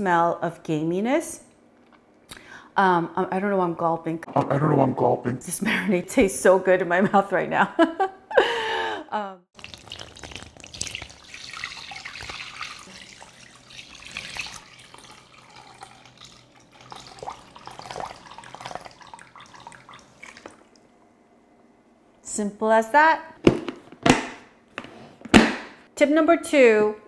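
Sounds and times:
marinade pouring and splashing: 0:09.6 - 0:21.0.

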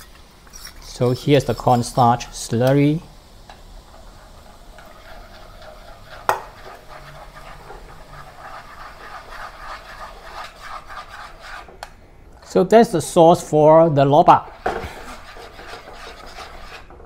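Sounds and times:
spatula scraping a pan: 0:00.0 - 0:02.0, 0:03.8 - 0:11.8, 0:14.4 - 0:17.0
sauce bubbling in a pan: 0:00.0 - 0:12.3, 0:14.4 - 0:17.0.

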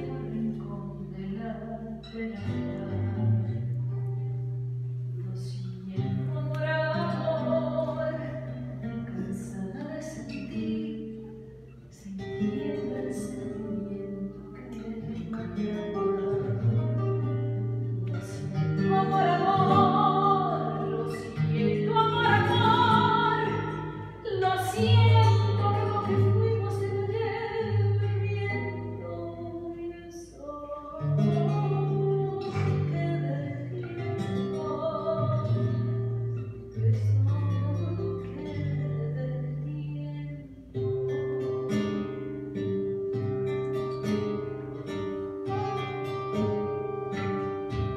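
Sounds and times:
acoustic guitar: 0:00.0 - 0:47.9
person singing with vibrato: 0:05.2 - 0:17.5, 0:18.1 - 0:41.7.

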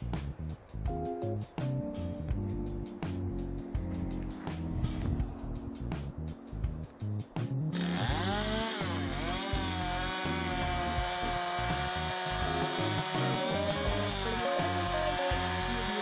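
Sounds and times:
background music with a beat: 0:00.0 - 0:16.0
chainsaw cutting a log: 0:07.7 - 0:16.0.

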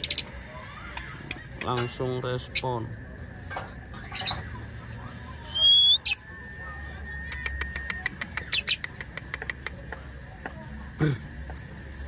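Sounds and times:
lovebird chirping and whistling: 0:04.0 - 0:04.5, 0:05.4 - 0:09.1.

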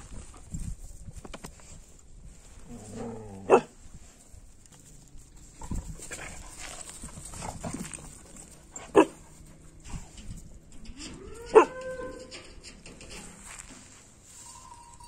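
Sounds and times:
dog barking: 0:03.5 - 0:03.7, 0:08.9 - 0:09.2.

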